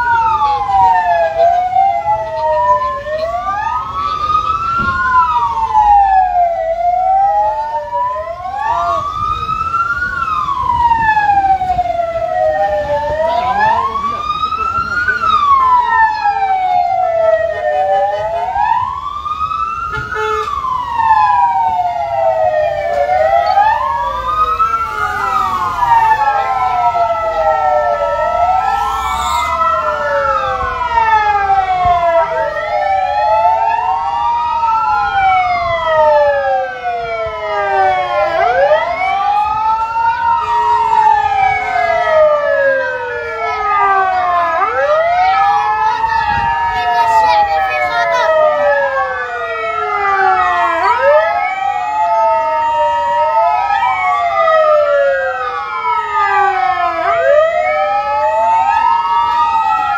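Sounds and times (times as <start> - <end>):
ambulance sirens wailing: 0.0 - 59.9.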